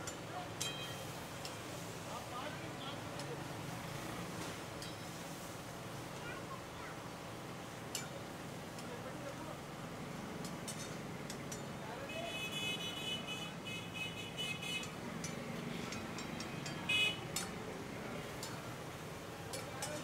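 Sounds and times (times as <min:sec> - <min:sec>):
metal ladle clinking on pans: 0:00.0 - 0:01.6, 0:07.9 - 0:08.3, 0:19.5 - 0:20.0
background chatter: 0:00.0 - 0:20.0.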